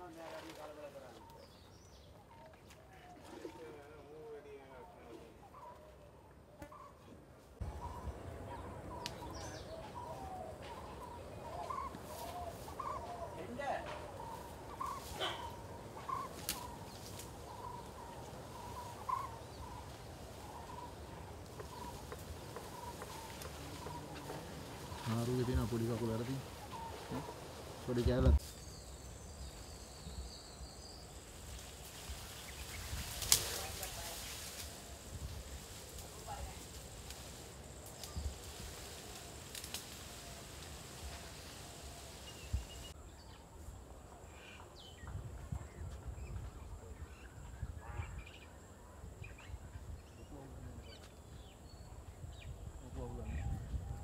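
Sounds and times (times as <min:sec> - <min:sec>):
faint outdoor ambience: 0:00.0 - 0:54.0
low wind rumble: 0:07.6 - 0:44.2, 0:44.8 - 0:54.0
insects droning: 0:07.6 - 0:45.0.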